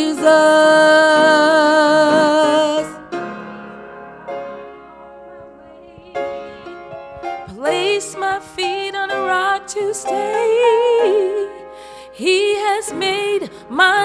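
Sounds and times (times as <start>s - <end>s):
woman singing gospel: 0.0s - 3.0s, 7.5s - 11.6s, 12.2s - 14.0s
held accompaniment chords: 0.0s - 14.0s.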